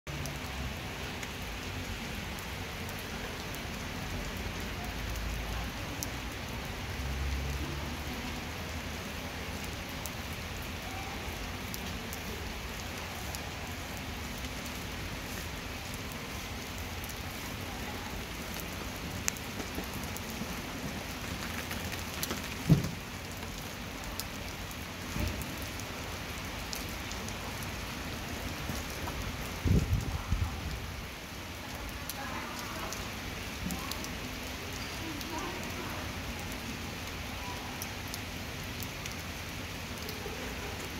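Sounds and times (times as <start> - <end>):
rain on stone pavement: 0.1 - 40.9.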